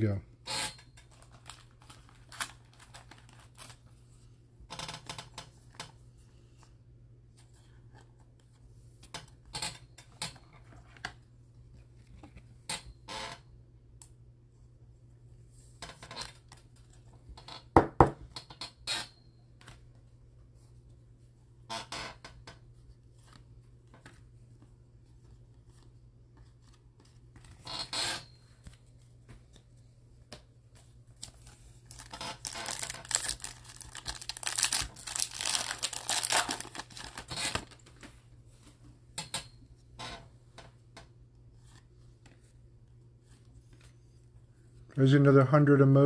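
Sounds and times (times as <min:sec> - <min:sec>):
card pack wrapper tearing and crinkling: 0:01.1 - 0:03.9, 0:31.2 - 0:37.8
cards being handled: 0:01.1 - 0:04.0, 0:28.6 - 0:38.7.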